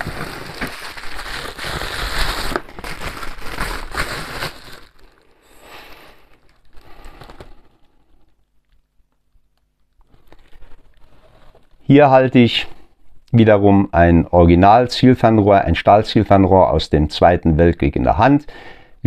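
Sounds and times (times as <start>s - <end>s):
wrapping crinkling and rustling: 0.0s - 11.9s.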